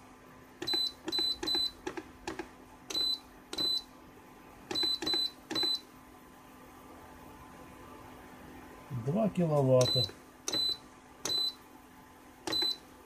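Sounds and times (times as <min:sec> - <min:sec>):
cooktop control panel beeping: 0:00.6 - 0:03.9, 0:04.7 - 0:05.9, 0:09.8 - 0:11.6, 0:12.4 - 0:12.9.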